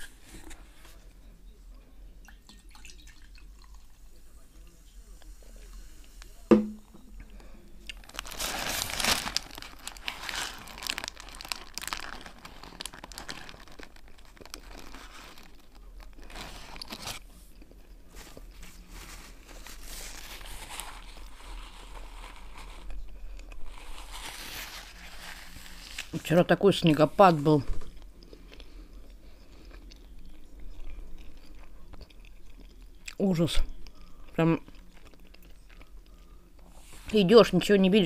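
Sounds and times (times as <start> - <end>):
sharp knock: 6.5 - 7.0
paper wrapper crinkling: 7.9 - 17.3, 18.1 - 28.2
biting and chewing: 27.9 - 33.2, 33.8 - 36.7.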